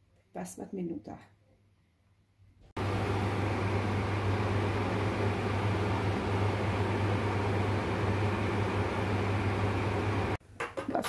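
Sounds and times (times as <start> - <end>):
water boiling in a pot: 2.8 - 10.4.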